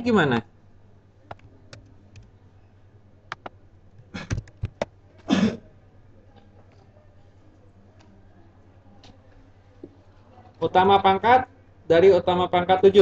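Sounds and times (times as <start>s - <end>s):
keyboard keys clicking: 1.3s - 2.3s, 3.3s - 4.9s
cough-like burst: 5.3s - 5.6s.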